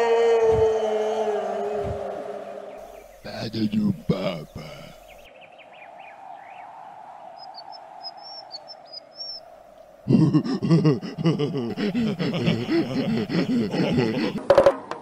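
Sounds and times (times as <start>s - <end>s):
bird chirps: 2.7s - 6.7s, 7.3s - 10.0s
cartoon caveman laughter: 3.2s - 5.0s, 10.0s - 14.4s.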